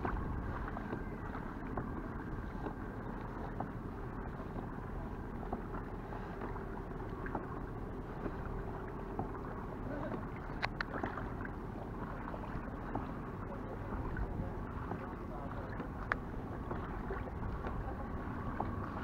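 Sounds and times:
water lapping against kayak hull: 0.0 - 19.0
water splash: 9.2 - 13.1
small clicks: 10.6 - 11.0.

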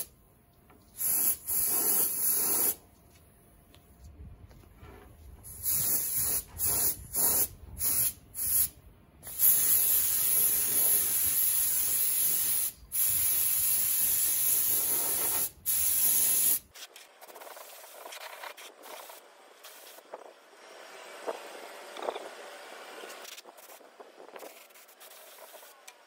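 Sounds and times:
paint spray gun hissing: 1.0 - 2.8, 5.5 - 16.6.

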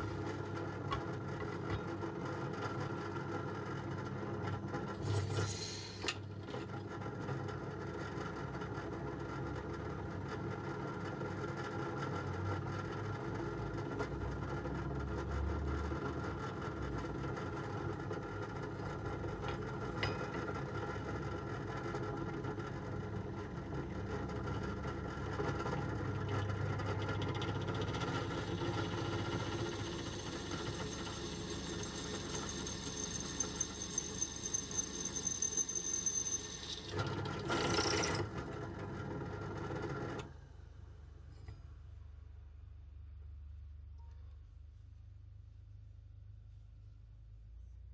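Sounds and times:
drill press motor: 27.2 - 40.2
drill cutting whine: 28.0 - 38.2.

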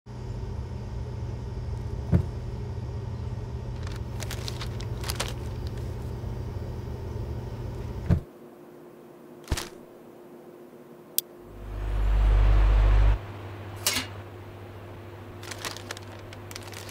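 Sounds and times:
refrigerator hum: 0.1 - 8.3, 11.2 - 16.9
paper crinkling: 3.8 - 6.1, 9.4 - 9.8, 15.3 - 16.9.

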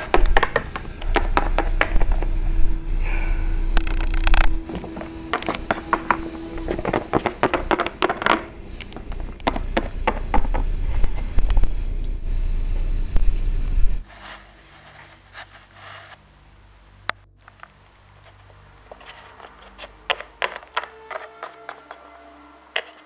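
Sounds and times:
toy figures and stones knocking on wood: 0.0 - 2.3, 4.0 - 10.7, 19.4 - 22.0
low rumble: 0.0 - 14.0.

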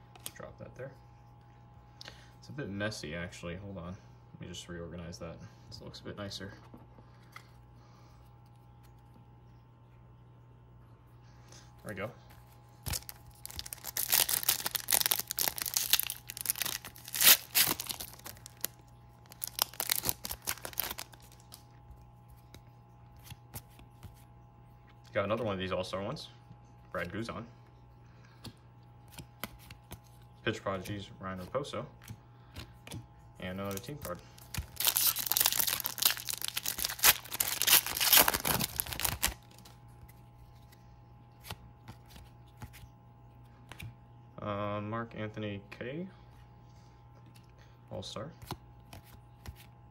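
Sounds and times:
foil wrapper crinkling: 12.5 - 24.1, 33.6 - 39.9.

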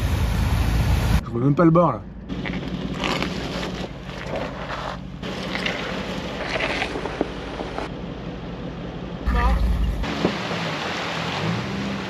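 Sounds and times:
engine humming: 0.0 - 12.0
tyres crackling over leaves: 2.3 - 7.9.

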